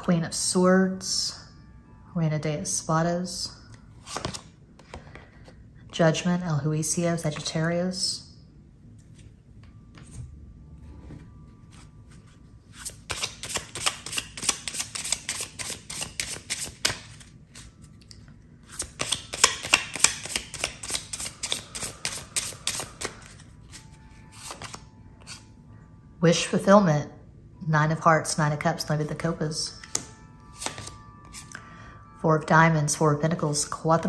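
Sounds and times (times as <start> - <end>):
cards being shuffled: 4.0 - 5.2, 11.7 - 25.4, 29.8 - 31.5.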